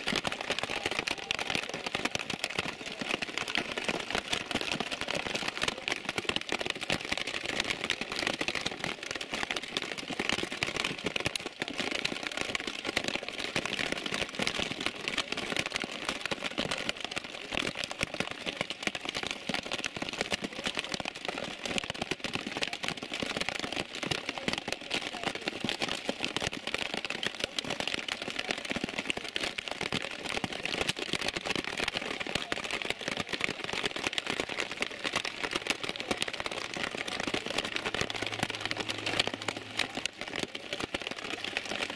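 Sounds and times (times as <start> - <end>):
heavy rain falling: 0.0 - 13.7, 22.6 - 41.9.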